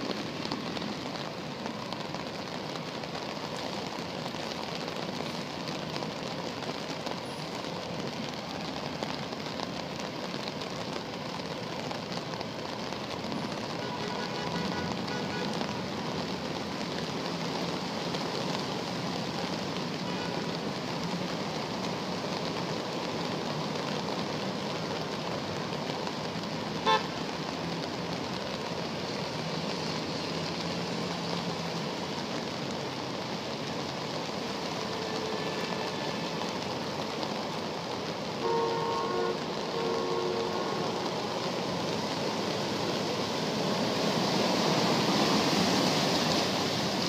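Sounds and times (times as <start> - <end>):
heavy rain: 0.0 - 47.0
traffic through floodwater: 0.0 - 47.0
car horn toot: 26.8 - 27.1, 38.4 - 40.9.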